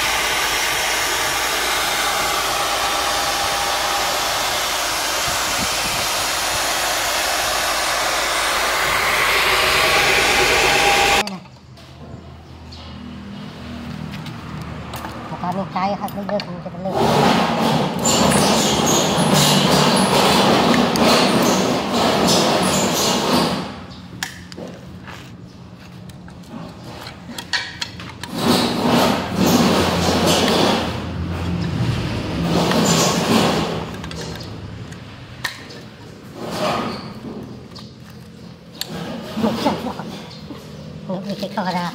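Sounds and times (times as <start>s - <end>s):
drill press boring: 0.0s - 11.2s, 17.0s - 23.7s, 32.5s - 33.9s
loud rushing noise with hum: 0.0s - 11.2s.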